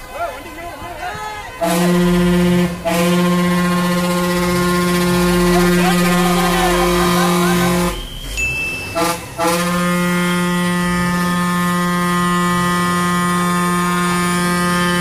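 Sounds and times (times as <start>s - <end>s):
low horn blast: 1.5s - 15.0s.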